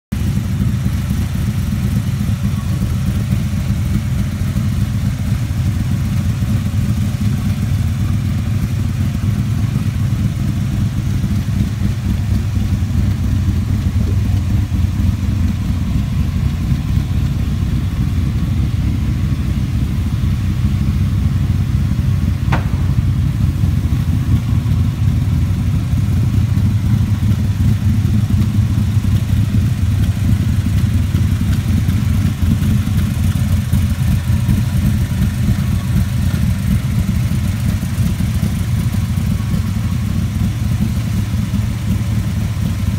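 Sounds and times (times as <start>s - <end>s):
car engine idling: 0.1s - 42.9s.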